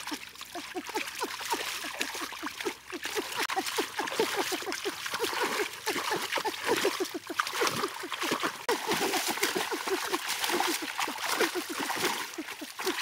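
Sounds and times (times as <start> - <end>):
water splashing and sloshing: 0.0 - 13.0.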